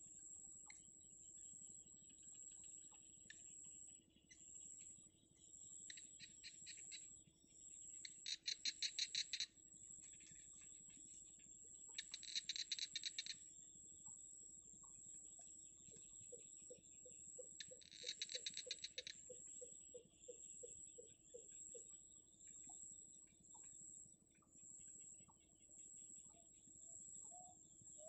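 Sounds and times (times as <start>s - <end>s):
nestling birds chattering: 17.6s - 19.1s.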